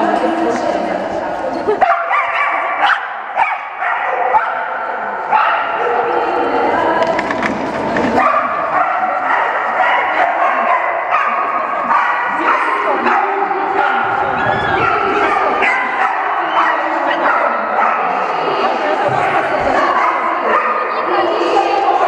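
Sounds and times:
dog barking and yipping: 1.8s - 6.0s, 8.2s - 18.1s.

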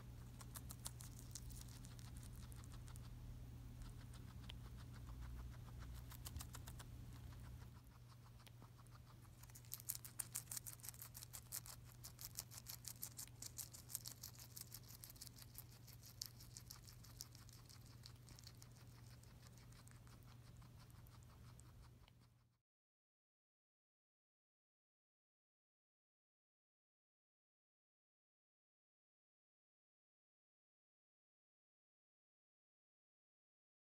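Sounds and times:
faint steady hum: 0.0s - 22.6s
guinea pig crunching lettuce: 0.0s - 22.6s.

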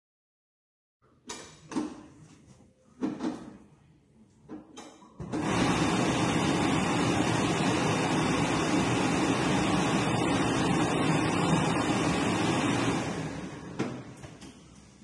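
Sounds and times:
blower rushing air: 5.3s - 14.2s.

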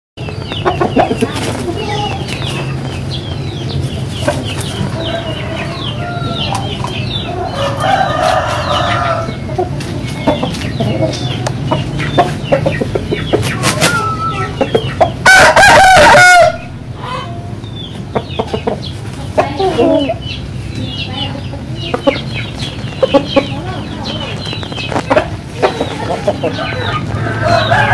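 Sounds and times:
chickens clucking and chirping: 0.2s - 27.9s
rooster crowing: 7.5s - 9.3s, 15.2s - 16.7s, 26.5s - 27.9s.

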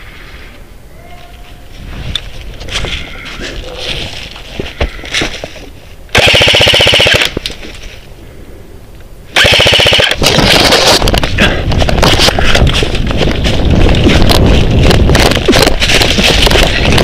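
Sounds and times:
wind noise on microphone: 0.0s - 17.0s
loud uneven rustle: 1.4s - 6.0s, 10.2s - 17.0s
airsoft gun full-auto bursts: 6.1s - 7.4s, 9.4s - 11.0s.

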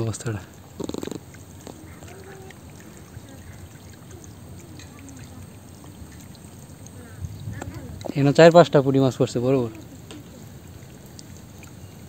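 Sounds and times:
fish splashing: 0.0s - 8.9s
water trickling: 0.0s - 12.0s.

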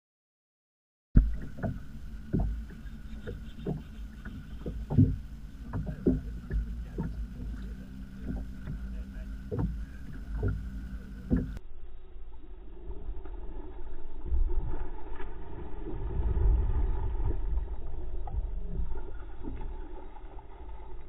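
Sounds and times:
sharp knocks: 1.2s - 7.2s
wind and water rumble: 1.2s - 21.0s.

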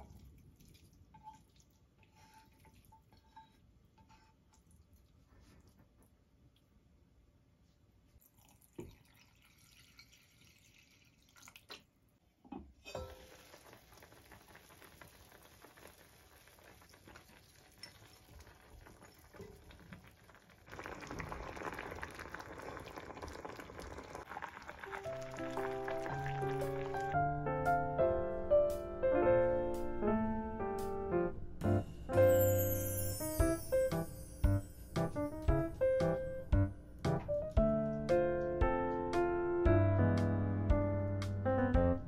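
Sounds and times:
pot bubbling: 12.9s - 27.2s.

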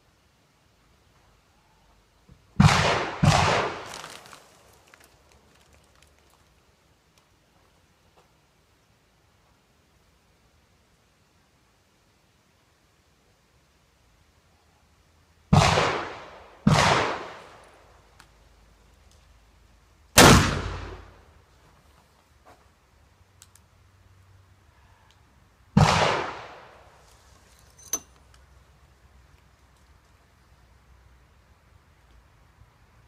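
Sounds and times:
gunshots: 2.6s - 4.1s, 15.5s - 17.4s, 20.2s - 21.1s, 25.8s - 26.7s.

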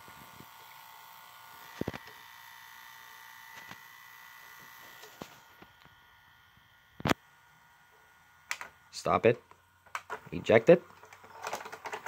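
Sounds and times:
vcr head drum whine: 0.0s - 7.2s.

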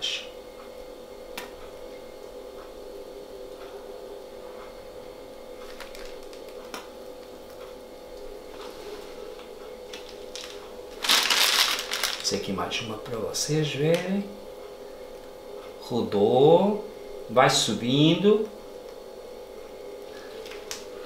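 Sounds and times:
faint hum: 0.0s - 21.0s.

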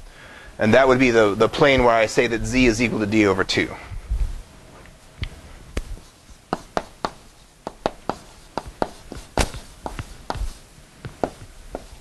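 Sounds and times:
chalk tapping on blackboard: 5.8s - 12.0s.

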